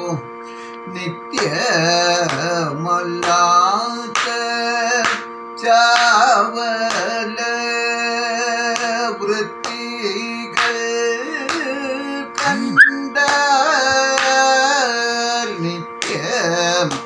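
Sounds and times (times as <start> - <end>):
man singing with ornamented notes: 0.0 - 17.0
sharp rhythmic beats: 12.4 - 13.0.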